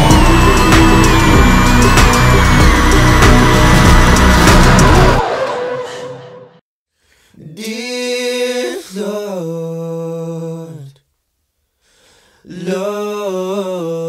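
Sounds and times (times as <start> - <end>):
man singing held notes: 7.4 - 11.0.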